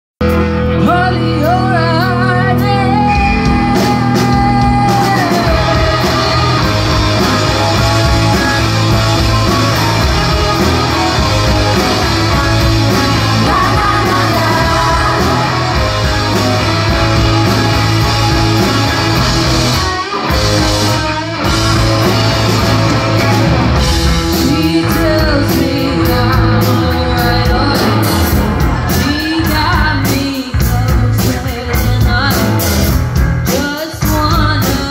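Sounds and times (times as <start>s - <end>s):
rock band playing: 0.2s - 34.9s
woman singing: 0.8s - 7.0s, 13.1s - 16.1s, 24.3s - 32.8s, 33.4s - 34.9s.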